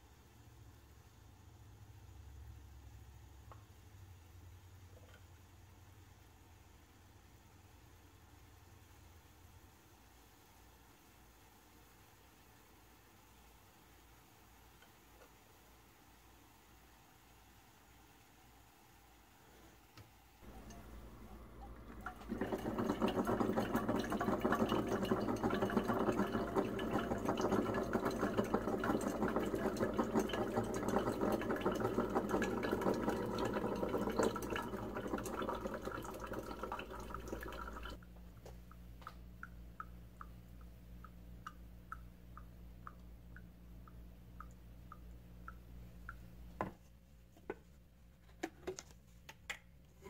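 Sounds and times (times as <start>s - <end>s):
coffee stream splashing into mug: 20.4s - 38.0s.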